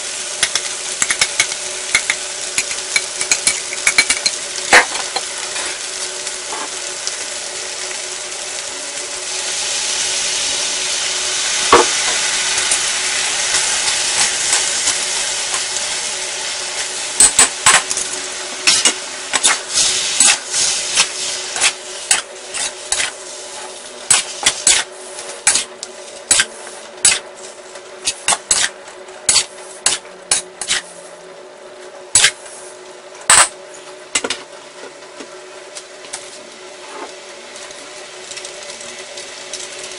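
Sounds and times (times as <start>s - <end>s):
food sizzling in a wok: 0.0s - 31.4s, 32.0s - 39.9s
spatula clanking and scraping wok: 0.4s - 5.8s, 18.6s - 27.3s, 28.0s - 30.9s, 32.1s - 32.4s.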